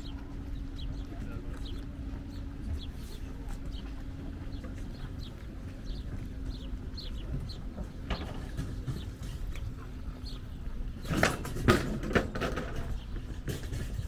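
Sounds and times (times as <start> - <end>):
outdoor background rumble: 0.0 - 14.0
sharp clattering knocks: 7.2 - 14.0.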